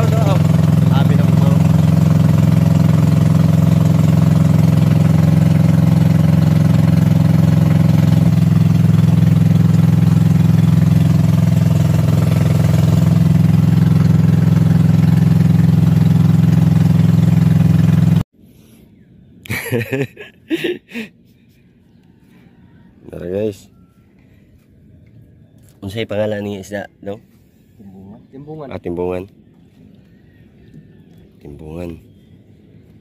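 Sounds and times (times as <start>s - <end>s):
boat engine humming: 0.0s - 18.3s, 26.6s - 33.0s.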